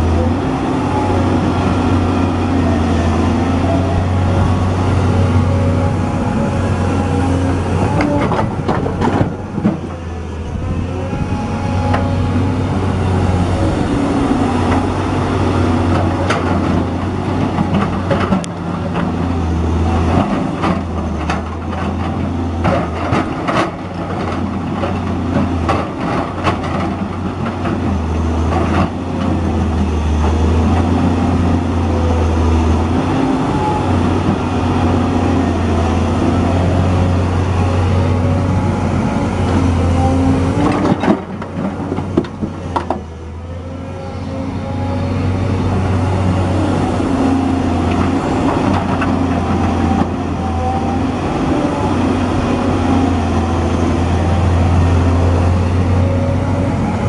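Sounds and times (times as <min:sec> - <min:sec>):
excavator diesel engine working: 0:00.0 - 0:57.0.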